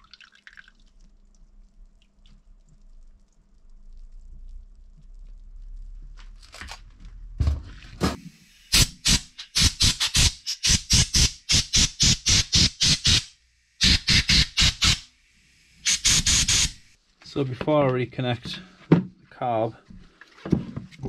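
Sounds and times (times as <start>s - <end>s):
compressed air blow gun blasts: 8.1s - 17.0s.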